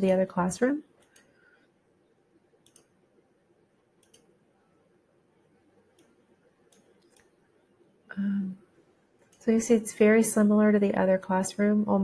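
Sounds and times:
faint computer mouse clicks: 0:01.0 - 0:01.7, 0:02.6 - 0:02.9, 0:04.0 - 0:04.3, 0:05.9 - 0:07.4.

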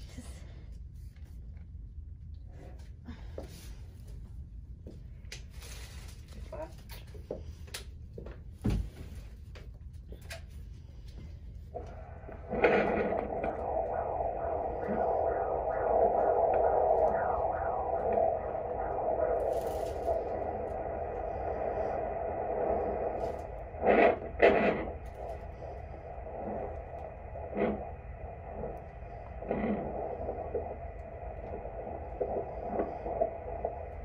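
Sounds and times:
doppler speaker hissing: 0:11.7 - 0:34.0
fast rhythmic heartbeat pulse: 0:11.7 - 0:34.0.

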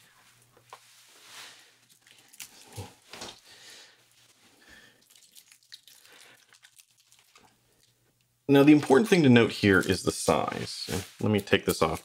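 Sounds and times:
soft rustling and handling: 0:00.0 - 0:03.4, 0:04.0 - 0:04.7, 0:06.8 - 0:12.0.

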